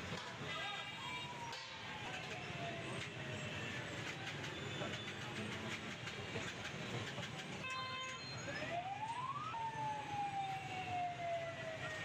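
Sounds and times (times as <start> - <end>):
busy night street noise: 0.0 - 12.0.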